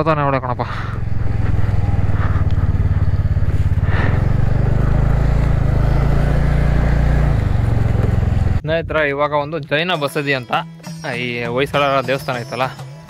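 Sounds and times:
motorcycle engine droning: 0.0 - 8.6.

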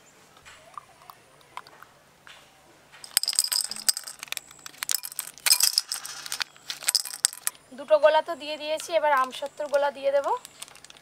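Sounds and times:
candy rattling into a bowl: 3.0 - 7.6, 9.1 - 11.0
plastic packets crinkling: 3.0 - 7.6, 9.0 - 11.0.

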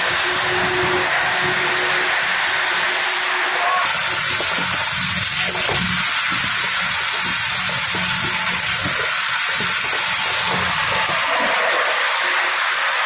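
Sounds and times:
machinery hissing: 0.0 - 13.0
popcorn tumbling in a drum: 3.9 - 12.2.

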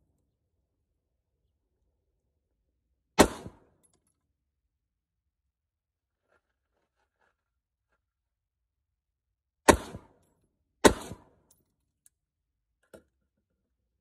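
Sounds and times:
rifle shots with echo: 3.2 - 3.8, 9.7 - 10.2, 10.8 - 11.4.

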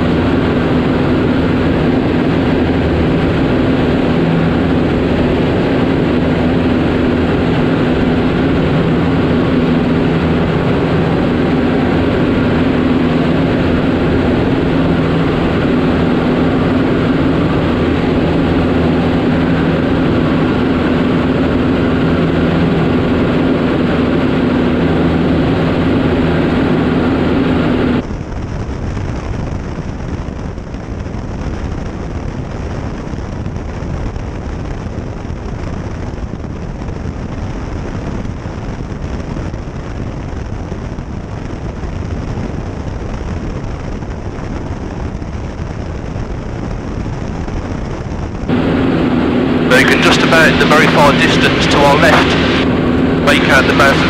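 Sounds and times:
airplane engine and propeller drone: 0.0 - 54.0.

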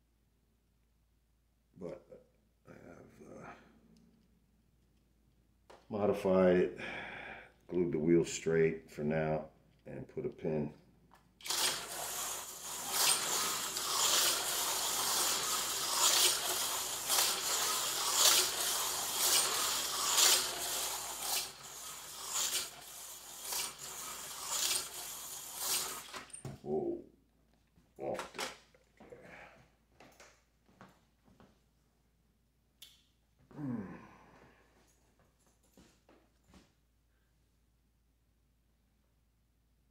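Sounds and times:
slot car whirring and rattling: 11.4 - 26.4.

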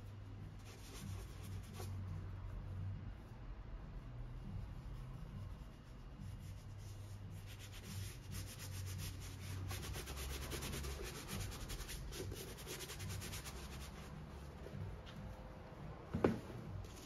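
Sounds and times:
gloved hand rubbing leather boot: 4.8 - 15.4.

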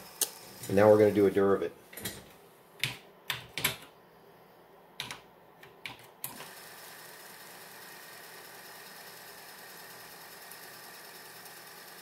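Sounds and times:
floppy drive motor hum: 5.7 - 12.0.

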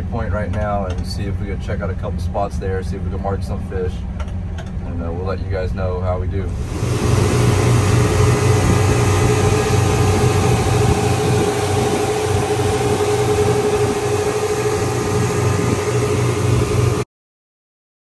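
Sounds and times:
outboard motors droning: 0.0 - 17.0
wind and water rushing: 6.5 - 17.0.

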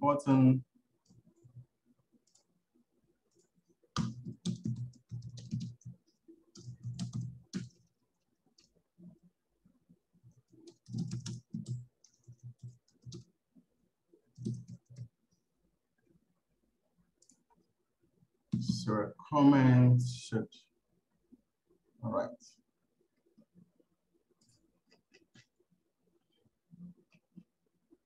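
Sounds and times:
computer keyboard typing: 2.2 - 2.5, 3.3 - 8.8, 10.2 - 13.3, 14.3 - 15.2, 24.4 - 25.5.

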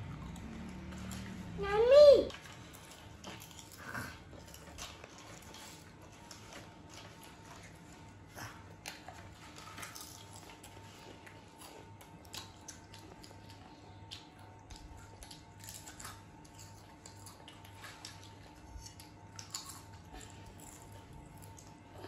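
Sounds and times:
steady low hum: 0.0 - 22.0
potato chips crunching: 8.7 - 21.9.

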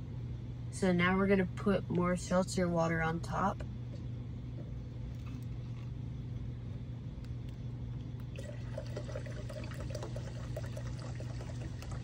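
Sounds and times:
low steady hum: 0.0 - 12.0
water pouring into glass: 8.3 - 12.0.

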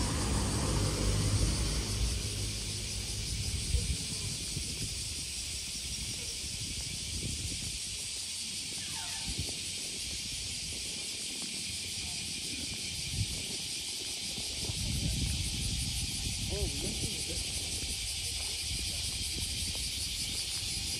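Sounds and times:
low rumbling: 0.0 - 5.6
cicadas droning: 0.0 - 20.9.

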